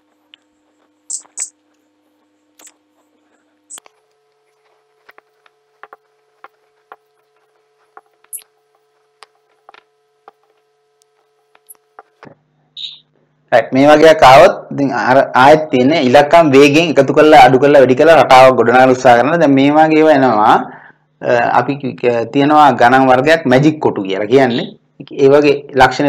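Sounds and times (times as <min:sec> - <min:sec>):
faint steady hum: 0:00.0 - 0:26.0
marker squeaking on whiteboard: 0:01.1 - 0:01.6, 0:02.6 - 0:02.8, 0:05.8 - 0:08.6, 0:12.8 - 0:13.1.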